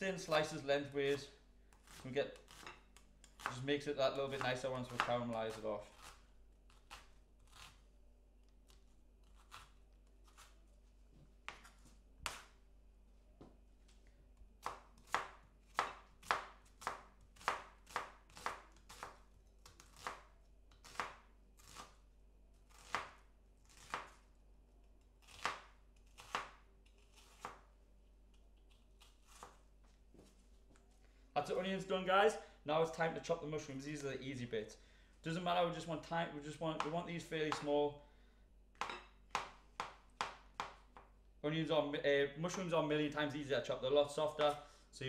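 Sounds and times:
knife chopping on cutting board: 14.6s - 19.2s, 37.5s - 37.7s, 38.8s - 41.1s.

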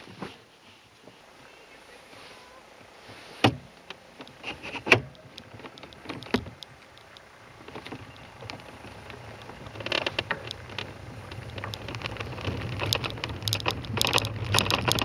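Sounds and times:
cart wheels rolling downhill: 0.0s - 15.0s
cart body knocking and rattling: 3.4s - 15.0s.

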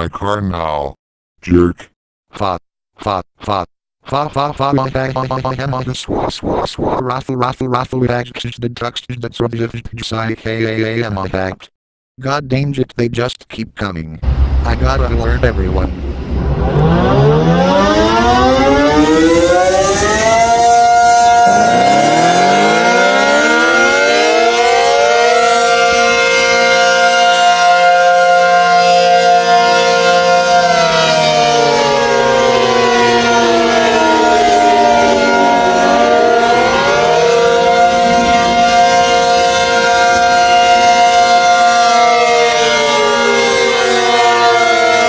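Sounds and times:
warning siren wailing: 16.0s - 45.0s
siren winding up: 16.4s - 26.7s.

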